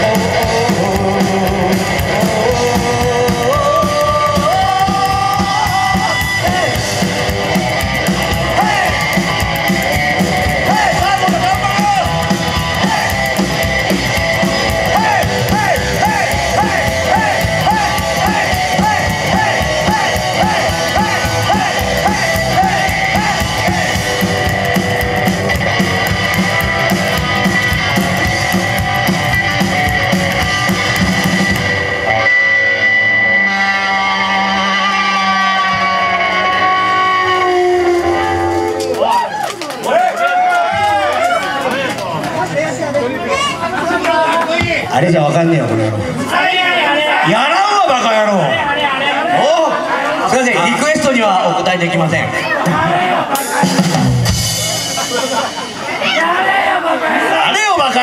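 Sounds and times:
electric guitar lead: 0.0s - 39.2s, 53.4s - 56.1s
bass guitar: 0.0s - 44.0s, 47.9s - 56.2s
drums: 0.0s - 58.0s.

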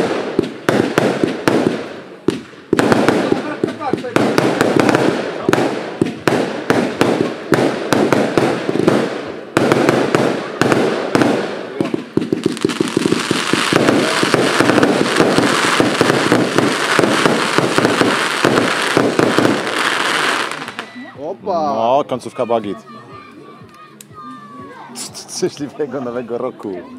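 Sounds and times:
fireworks bangs and crackling: 0.0s - 21.0s.

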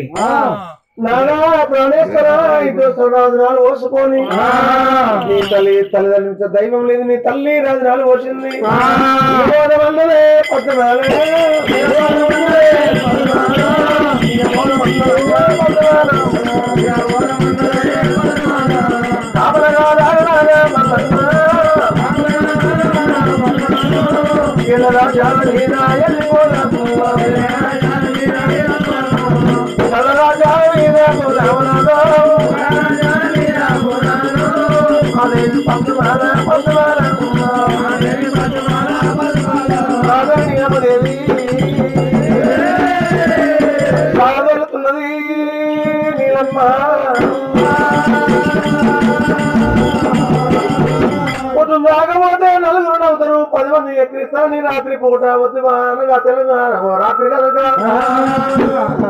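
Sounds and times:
voices singing: 0.0s - 6.3s, 7.3s - 52.0s, 56.4s - 59.0s
rattling percussion: 4.2s - 6.1s, 8.5s - 44.6s, 45.6s - 51.8s, 57.0s - 59.0s
hourglass drum beating: 10.5s - 44.2s, 47.1s - 51.6s.

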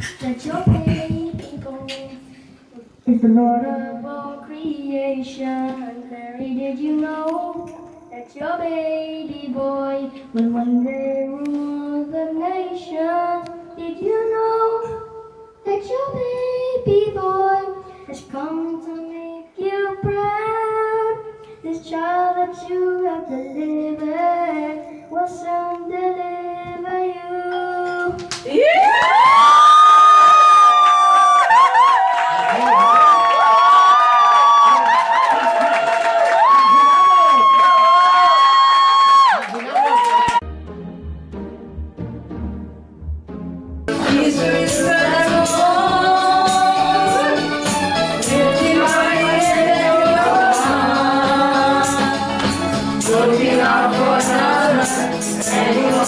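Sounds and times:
child singing into microphone: 0.0s - 28.4s, 43.9s - 47.6s, 48.2s - 56.0s
crowd cheering and whooping: 28.5s - 40.4s.

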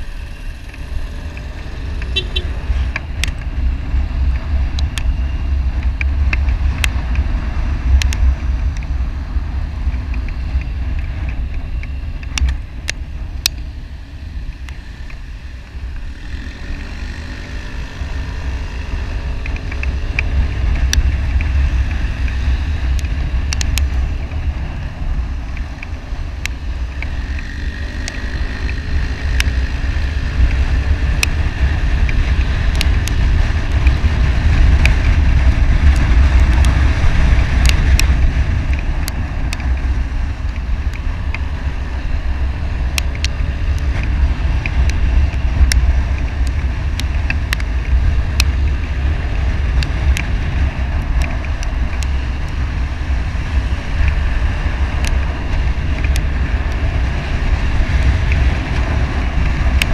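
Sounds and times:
motorcycle engine running: 0.0s - 59.9s
sharp ticks and knocks: 0.5s - 3.5s, 5.8s - 8.9s, 9.8s - 13.7s, 19.2s - 41.8s, 42.6s - 56.9s, 57.8s - 59.9s
wind buffeting microphone: 18.0s - 59.9s.

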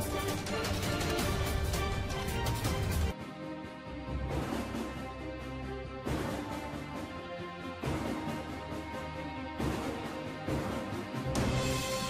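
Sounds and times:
dramatic background music: 0.0s - 12.0s.

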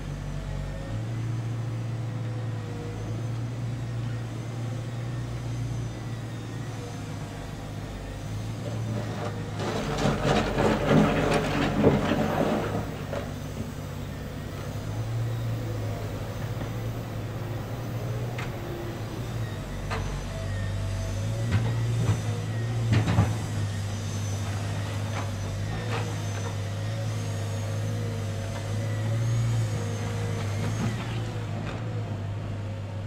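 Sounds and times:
diesel engine running: 0.0s - 33.0s
excavator clattering and scraping: 8.1s - 32.3s.

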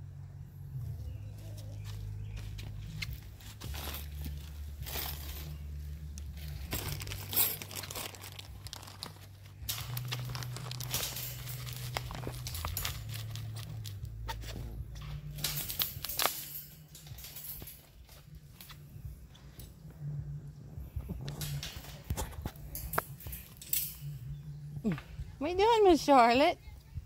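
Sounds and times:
steady low hum: 0.0s - 27.0s
pliers scraping wire: 9.0s - 17.4s.

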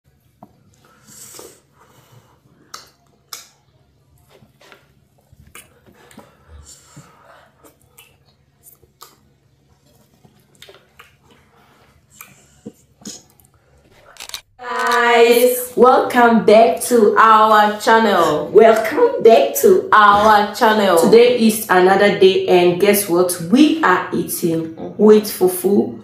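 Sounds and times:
wet chewing and lip smacks: 2.6s - 6.4s, 7.6s - 13.6s.

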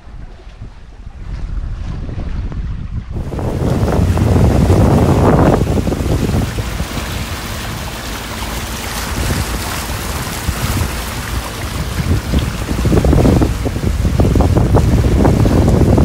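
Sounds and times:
sea water rushing: 0.0s - 16.0s
wind buffeting microphone: 0.0s - 16.0s.

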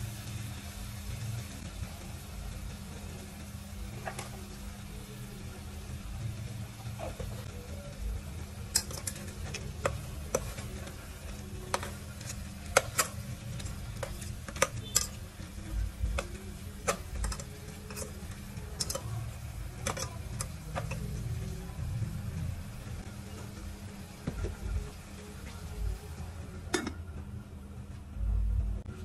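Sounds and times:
low steady hum: 0.0s - 29.0s
metal spoon clinking in pot: 8.7s - 10.8s, 11.7s - 15.2s, 16.2s - 18.2s, 18.8s - 19.2s, 19.8s - 21.1s.

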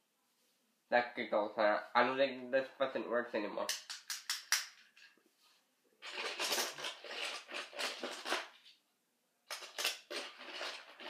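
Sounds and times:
toy trains clattering: 6.0s - 8.6s, 9.5s - 11.0s.

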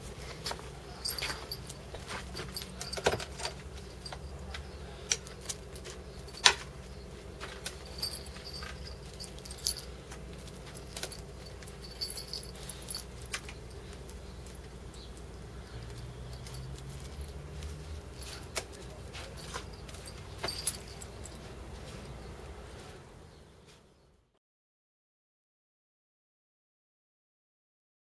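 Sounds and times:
metal tags jingling: 0.2s - 22.5s.

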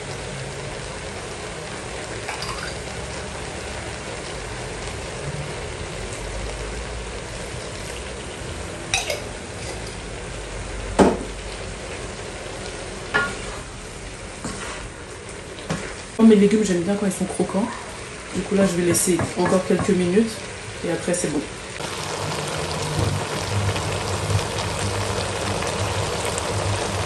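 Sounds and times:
vegetables sizzling in a wok: 0.0s - 27.0s.

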